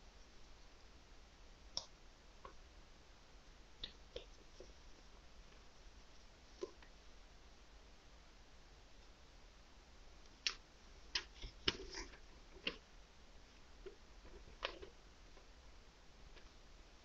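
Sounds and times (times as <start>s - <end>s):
paper crinkling and tapping: 10.4s - 12.8s, 13.8s - 15.5s, 16.3s - 16.6s.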